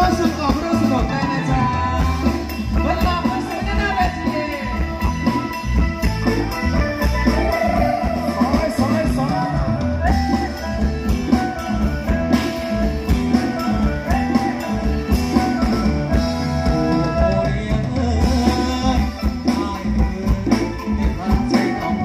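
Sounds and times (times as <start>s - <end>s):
drum kit beat: 0.0s - 22.0s
electric guitars: 0.0s - 22.0s
person singing: 6.9s - 22.0s.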